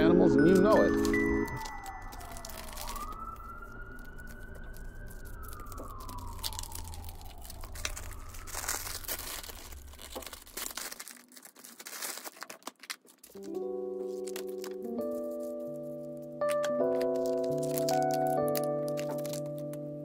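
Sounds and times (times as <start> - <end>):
siren wailing: 0.0 - 10.9, 13.5 - 20.0
paper being handled: 0.0 - 19.9
plastic bag crinkling: 0.0 - 20.0
low rumble: 1.1 - 10.8.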